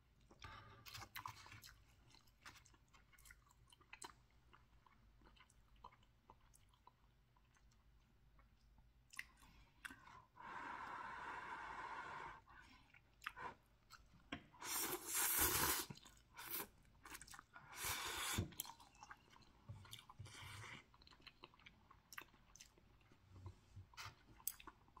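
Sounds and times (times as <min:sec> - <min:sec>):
soft chewing: 0:00.0 - 0:10.9, 0:12.4 - 0:25.0
noodle slurping: 0:14.6 - 0:16.7.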